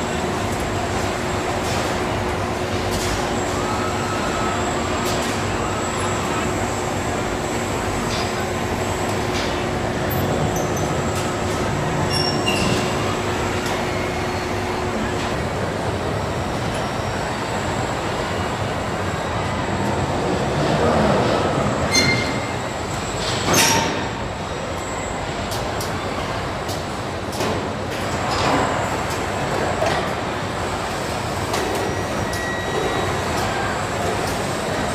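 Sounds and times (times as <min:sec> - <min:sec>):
industrial robot arms working: 0:00.0 - 0:20.7, 0:21.3 - 0:34.9
steady hum: 0:00.0 - 0:23.5.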